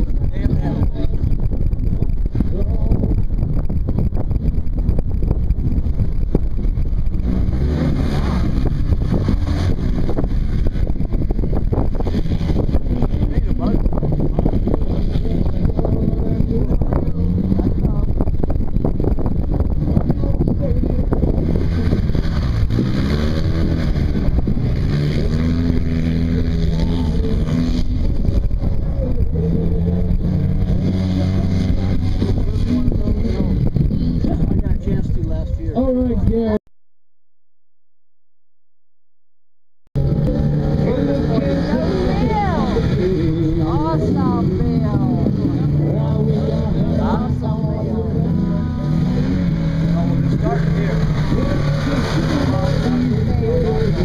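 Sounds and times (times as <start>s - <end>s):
utv engine running hard: 0.0s - 36.6s, 40.0s - 54.0s
wind buffeting microphone: 0.0s - 36.6s.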